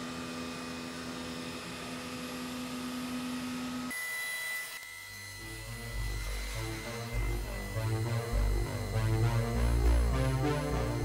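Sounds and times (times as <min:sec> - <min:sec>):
milling machine hum: 0:00.0 - 0:11.0
music: 0:05.3 - 0:11.0.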